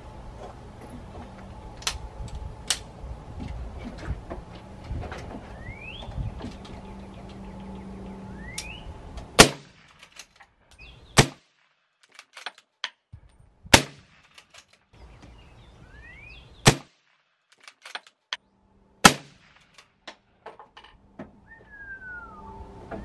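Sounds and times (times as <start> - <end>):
suppressed rifle shots: 9.4 - 10.0, 13.7 - 14.2, 19.0 - 19.6
rifle bolt clicks: 17.5 - 18.2.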